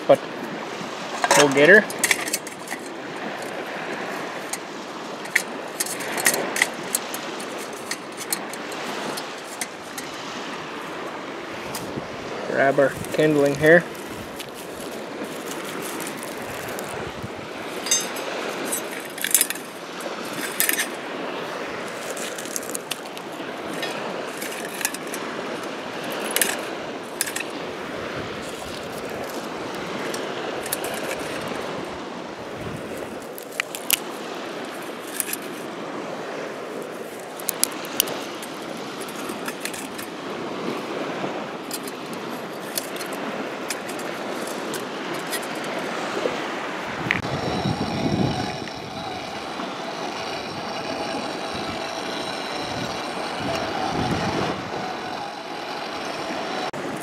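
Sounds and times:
wind gust buffeting microphone: 0.0s - 22.0s, 23.2s - 33.2s, 37.9s - 57.0s
dry twigs snapping: 13.9s - 17.0s, 21.9s - 25.2s, 32.9s - 34.1s.

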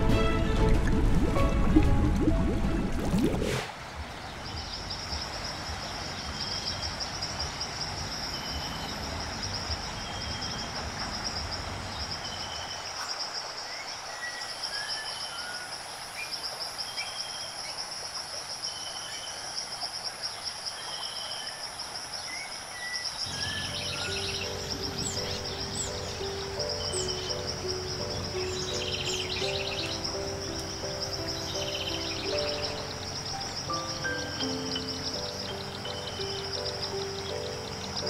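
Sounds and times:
insects trilling: 4.4s - 38.0s
faint bird chirps: 22.3s - 38.0s.

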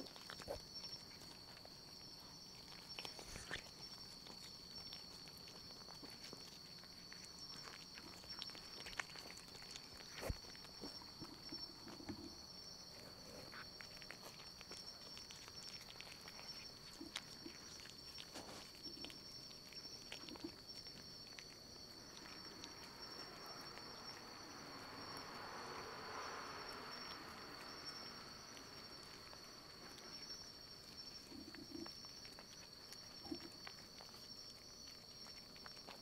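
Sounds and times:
soft rustling: 0.0s - 24.0s.

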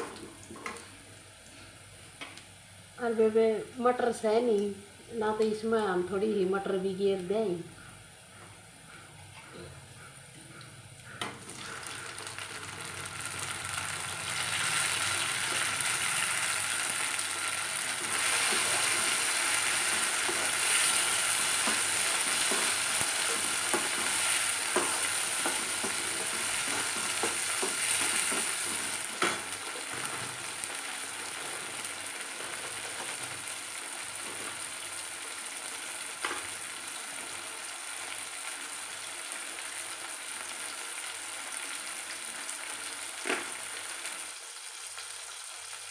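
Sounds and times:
vegetables sizzling in hot oil: 11.1s - 45.9s.

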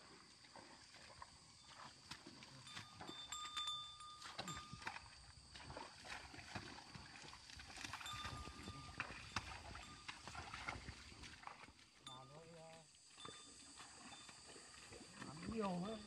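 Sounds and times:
squelching in mud: 0.0s - 12.0s.

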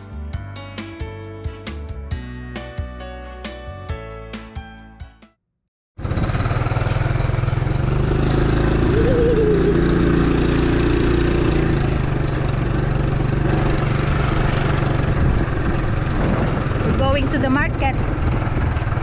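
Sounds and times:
small motorcycle engine running: 6.0s - 19.0s.

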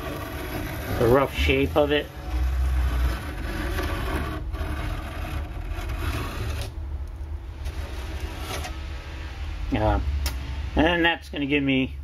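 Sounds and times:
pencil compass scratching on plywood: 0.0s - 6.7s
low steady rumble: 0.0s - 12.0s.

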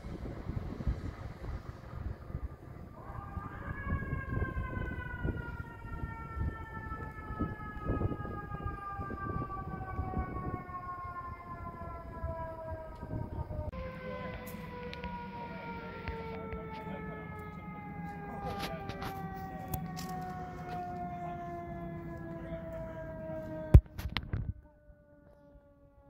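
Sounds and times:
vehicle engines rumbling: 0.0s - 25.2s
mechanical siren wailing: 0.0s - 26.0s.

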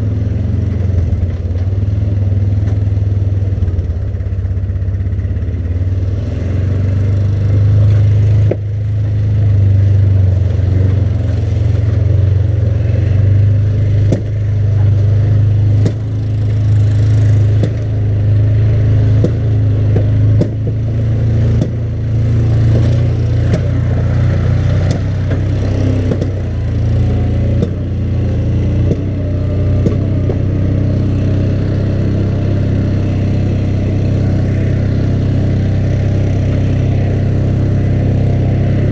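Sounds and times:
atv engine running: 0.0s - 38.9s
knocks and rattles: 19.2s - 20.8s, 21.5s - 21.8s.

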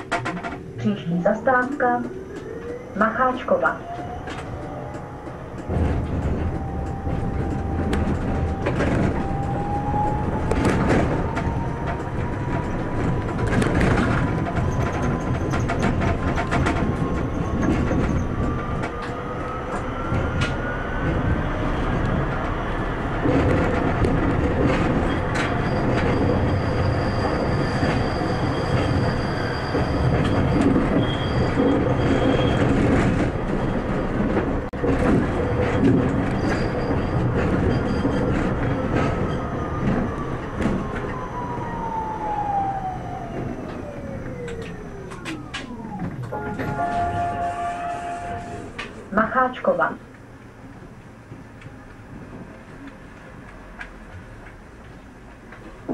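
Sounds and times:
tram motor whine: 0.0s - 49.1s
tram running rumble: 0.0s - 55.9s
high wheel squeal: 25.0s - 33.7s, 35.7s - 40.2s
clicks from rails: 43.4s - 47.0s.

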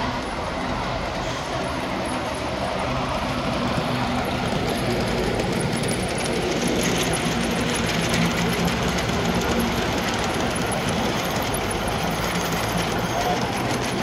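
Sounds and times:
model train motors humming: 0.0s - 14.0s.

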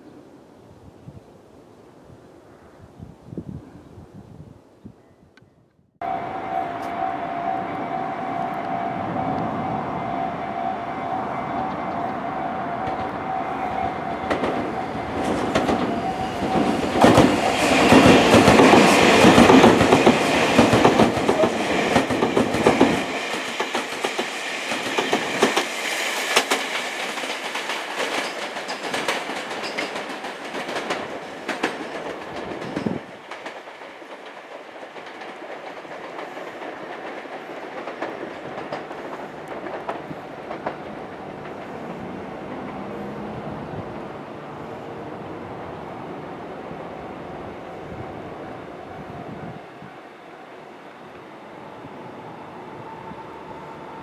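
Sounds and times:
electric train passing: 6.0s - 54.0s
wheels clicking over rail joints: 26.3s - 43.0s.

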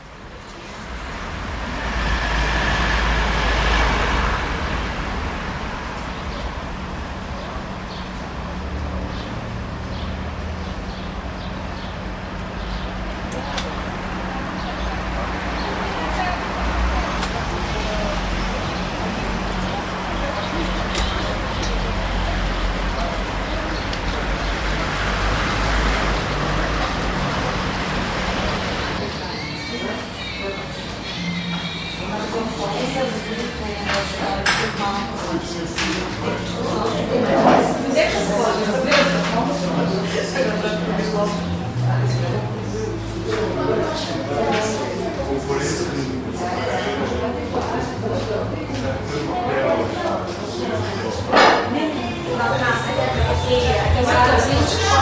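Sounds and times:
vehicle passing close: 0.0s - 49.6s
low traffic rumble: 0.0s - 55.0s
car passing close by: 0.6s - 7.4s.

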